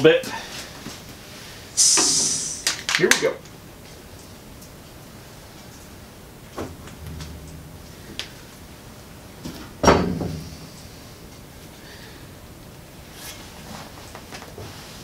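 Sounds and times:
low hum: 0:04.8 - 0:12.7.

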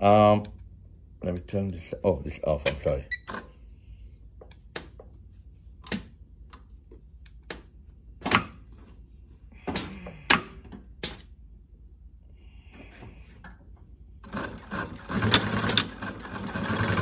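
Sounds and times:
low steady hum: 0:00.0 - 0:16.5
sewing machine clicks and knocks: 0:14.2 - 0:17.0.

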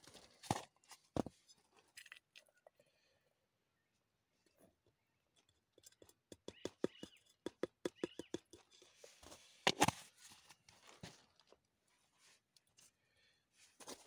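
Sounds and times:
plastic jar tapping steel pot: 0:06.0 - 0:08.7.

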